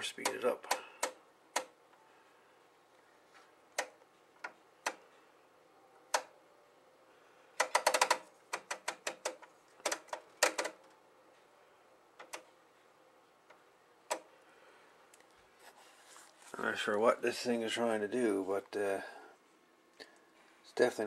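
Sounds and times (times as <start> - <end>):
rotary switch clicking: 0.2 - 1.8.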